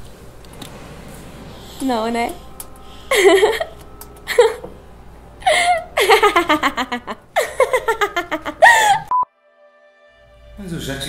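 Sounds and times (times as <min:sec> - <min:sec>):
woman laughing: 0:03.1 - 0:04.7, 0:05.4 - 0:09.1.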